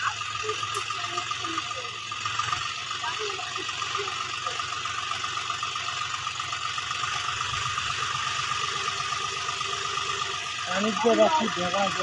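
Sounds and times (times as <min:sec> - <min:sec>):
diesel tractor engine droning: 0:00.0 - 0:12.0
steady high whine: 0:00.0 - 0:12.0.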